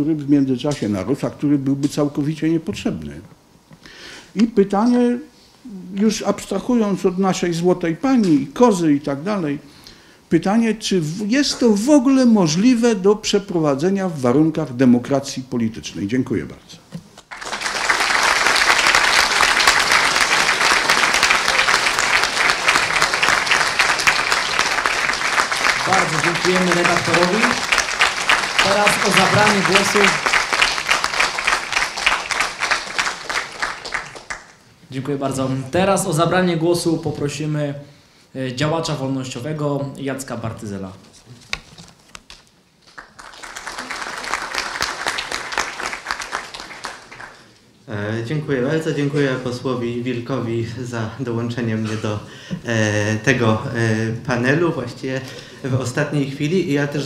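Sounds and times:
audience applause: 17.3s - 34.6s, 42.9s - 47.5s.

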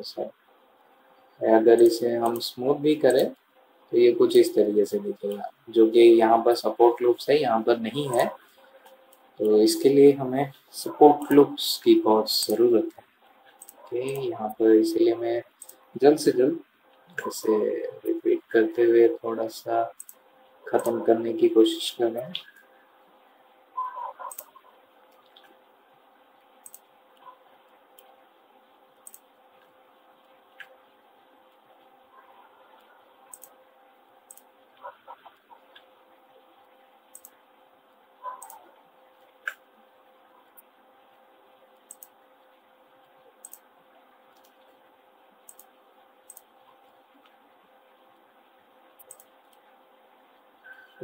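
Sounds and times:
low room hum: 0.0s - 51.0s
computer mouse clicks: 12.4s - 14.3s, 15.6s - 15.9s, 19.9s - 20.2s, 20.8s - 21.0s, 23.8s - 25.6s, 26.6s - 28.2s, 29.0s - 30.8s, 32.7s - 33.6s, 34.3s - 35.9s, 37.1s - 37.4s, 38.2s - 39.6s, 41.8s - 42.2s, 43.0s - 43.7s, 44.3s - 44.8s, 45.4s - 47.4s, 49.0s - 49.7s
mouse and keyboard clicks: 13.5s - 14.3s, 20.0s - 20.2s, 23.9s - 25.6s, 26.6s - 27.4s, 29.0s - 29.7s, 32.8s - 33.6s, 37.1s - 37.4s, 38.2s - 38.6s, 41.8s - 42.2s, 43.4s - 43.6s, 44.3s - 44.8s, 45.4s - 45.7s, 46.3s - 46.5s, 49.0s - 49.6s.

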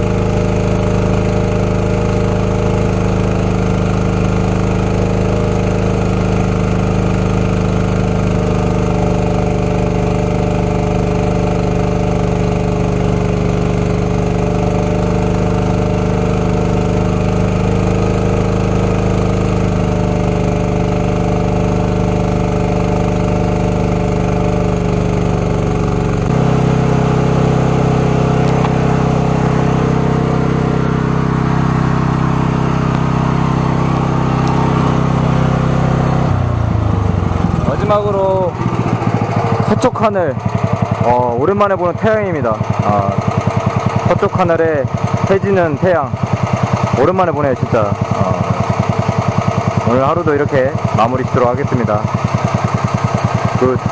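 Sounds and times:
washer engine running: 0.0s - 53.9s
high-pressure water spraying: 26.3s - 36.2s.

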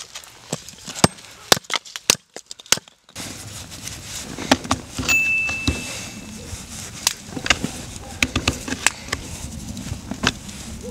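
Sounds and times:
thin high tone: 5.1s - 6.4s.

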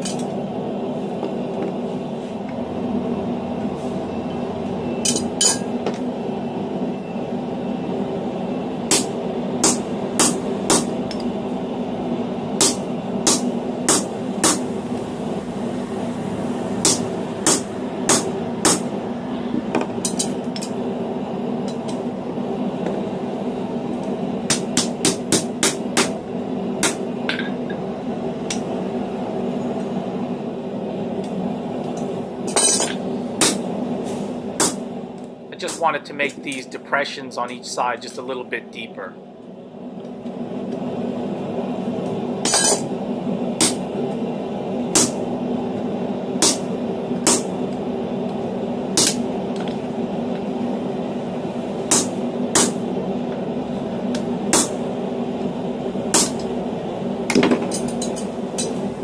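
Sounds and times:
steady hum: 0.0s - 59.0s
hammer striking metal punch: 16.8s - 18.9s.

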